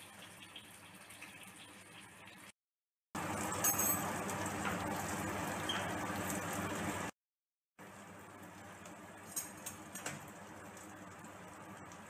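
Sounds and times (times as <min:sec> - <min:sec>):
gravy simmering and bubbling: 0:03.2 - 0:07.2, 0:07.8 - 0:12.0.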